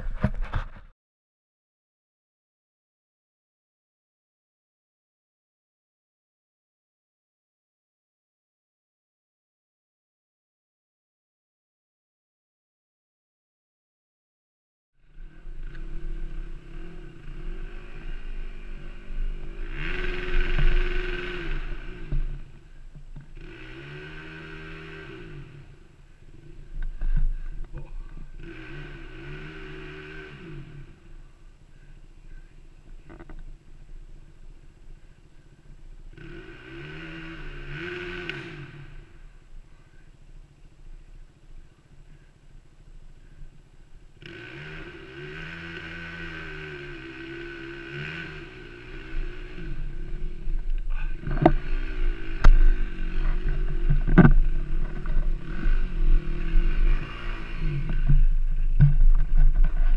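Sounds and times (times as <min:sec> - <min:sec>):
dirt bike engine revving: 0:15.0 - 0:35.2, 0:36.1 - 0:40.1, 0:44.2 - 0:59.9
low rumble: 0:49.0 - 0:59.9.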